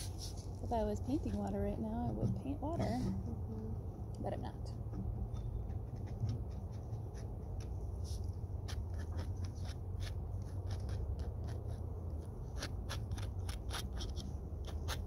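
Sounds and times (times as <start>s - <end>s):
steady low rumble: 0.0s - 15.0s
palette knife scraping canvas: 8.0s - 15.0s.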